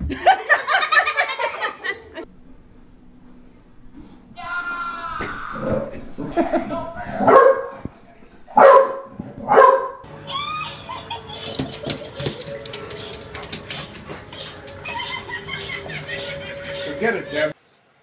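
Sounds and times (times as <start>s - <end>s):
steady hum: 2.2s - 10.1s
dog barking loudly: 7.2s - 7.8s, 8.5s - 10.1s.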